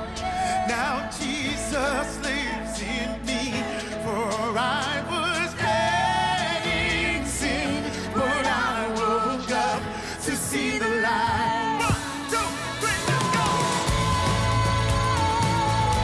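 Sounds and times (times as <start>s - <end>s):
man singing with vibrato: 0.0s - 16.0s
full band playing: 11.8s - 16.0s.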